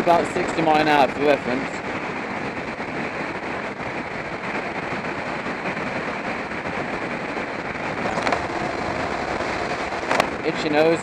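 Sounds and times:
wind rush: 0.0s - 11.0s
motorcycle engine cruising: 7.2s - 10.7s.

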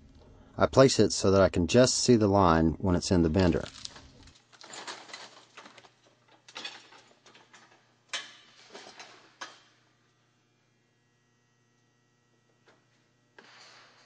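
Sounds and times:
metal sheet rattling and scraping: 3.6s - 6.0s.

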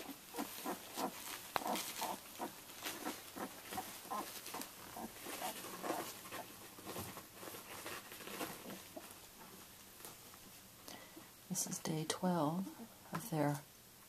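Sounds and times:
puppies grunting and squeaking: 0.0s - 6.6s
rustling of bedding: 0.0s - 11.8s.

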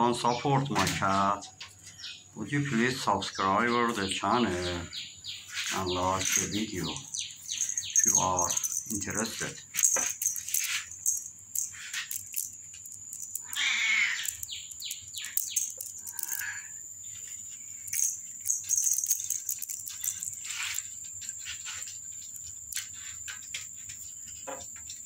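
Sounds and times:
claws tapping on tile floor: 7.5s - 16.6s, 17.2s - 25.0s
short cat cries: 13.5s - 14.3s.

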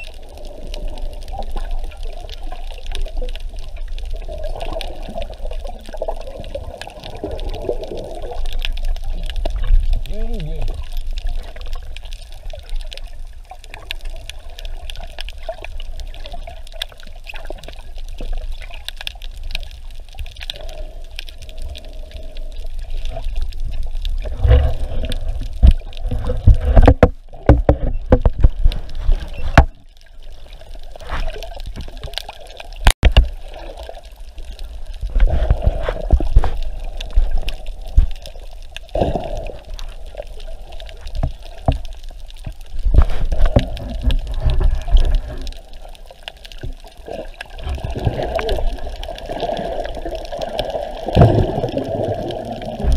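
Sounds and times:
low underwater rumble: 0.0s - 52.9s
water bubbling underwater: 0.0s - 52.9s
splashing and knocks: 24.3s - 29.8s, 32.8s - 33.6s, 50.6s - 52.9s.

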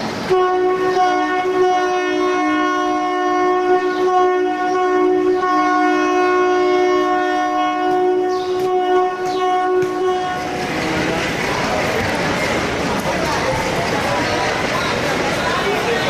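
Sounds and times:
two-tone locomotive horn blast: 0.2s - 11.1s.

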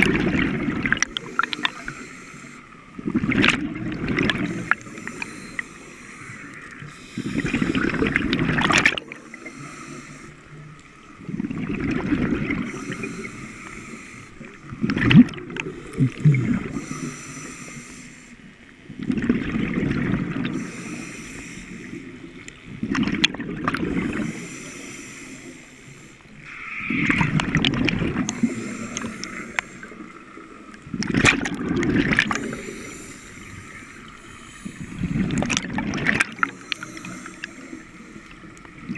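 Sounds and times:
regulator hiss on inhale: 1.0s - 2.8s, 4.4s - 8.2s, 9.0s - 10.9s, 12.6s - 14.7s, 15.7s - 18.6s, 20.5s - 22.2s, 24.1s - 26.8s, 28.2s - 30.6s, 32.4s - 35.4s, 36.4s - 38.7s.

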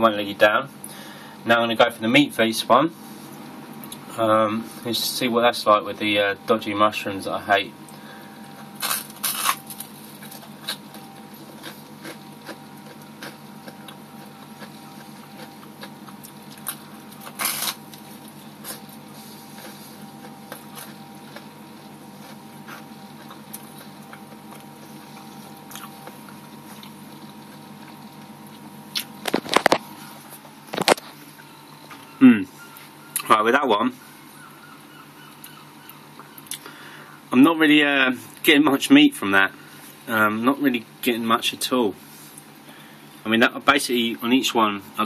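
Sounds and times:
mouth and handling noise: 7.9s - 33.3s
person chewing food: 7.9s - 33.3s, 35.2s - 36.8s.

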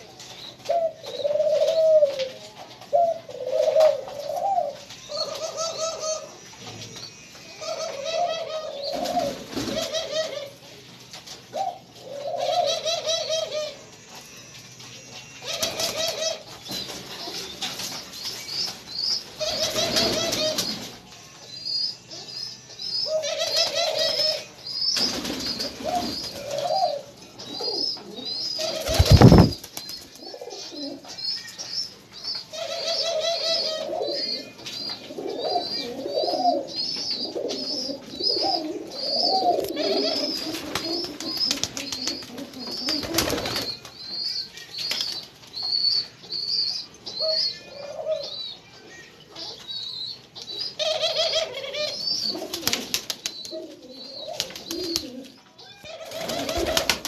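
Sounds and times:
doves cooing: 0.0s - 10.6s, 11.5s - 14.3s, 15.2s - 21.0s, 23.0s - 31.2s, 32.5s - 43.9s, 47.2s - 48.5s, 50.7s - 57.0s
small birds chirping: 12.8s - 57.0s.

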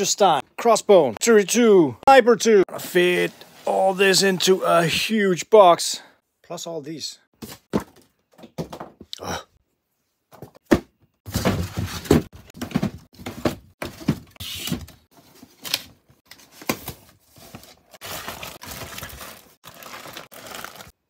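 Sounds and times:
boxes scraping and rustling: 2.7s - 5.1s, 11.3s - 15.7s, 16.3s - 20.9s
boxes knocking and thudding: 7.4s - 9.1s, 10.3s - 15.3s.

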